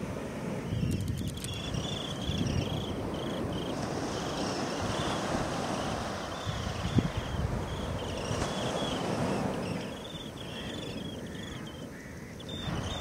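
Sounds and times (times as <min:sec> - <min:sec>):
surf rushing on beach: 0:00.0 - 0:13.0
wind buffeting microphone: 0:00.0 - 0:13.0.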